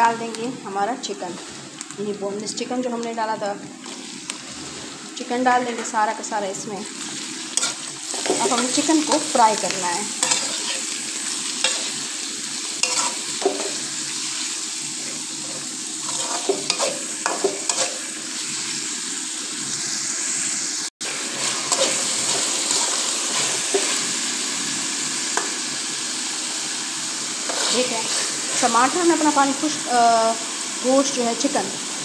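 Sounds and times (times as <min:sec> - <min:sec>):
food sizzling in hot oil: 0:00.0 - 0:32.0
utensil scraping a pan: 0:10.2 - 0:11.0, 0:12.8 - 0:13.8, 0:15.0 - 0:18.0, 0:27.5 - 0:28.8.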